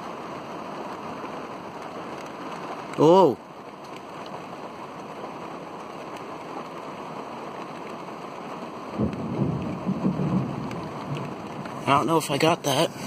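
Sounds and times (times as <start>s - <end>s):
steady rain: 0.0s - 13.0s
thunder rumbling: 8.9s - 13.0s.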